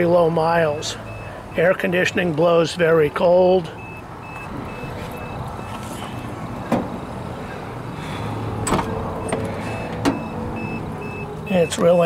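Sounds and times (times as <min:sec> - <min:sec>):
car door warning beeps: 0:01.1 - 0:01.7, 0:03.8 - 0:06.8, 0:08.6 - 0:12.0.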